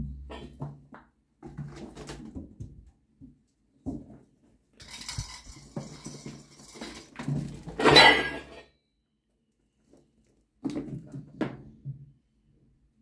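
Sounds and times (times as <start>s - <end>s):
toy ball rattling: 4.8s - 7.2s
kittens scuffling on floor: 4.8s - 8.0s.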